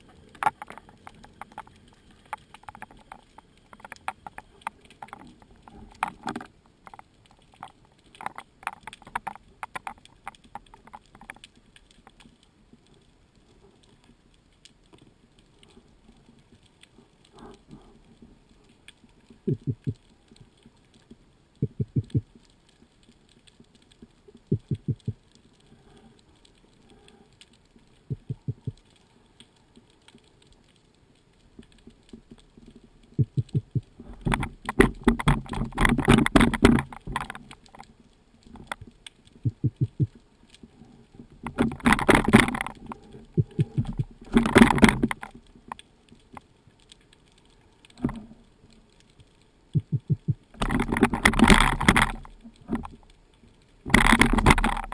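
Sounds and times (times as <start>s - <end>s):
rapid low underwater clicks: 0.0s - 54.9s
rushes of water noise: 31.3s - 46.4s, 49.7s - 54.9s.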